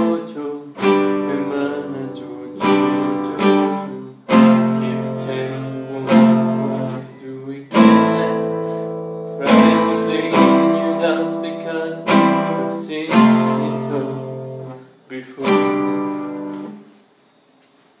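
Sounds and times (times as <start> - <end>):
acoustic guitar strummed chords: 0.0 - 17.0.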